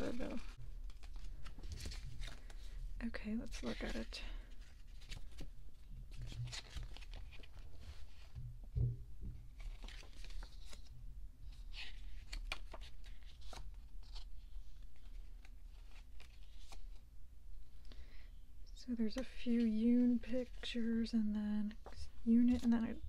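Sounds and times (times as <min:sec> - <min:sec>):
paper rustling and page turning: 0:00.0 - 0:08.5, 0:09.5 - 0:17.1, 0:21.6 - 0:23.0
soft thump: 0:08.4 - 0:09.4.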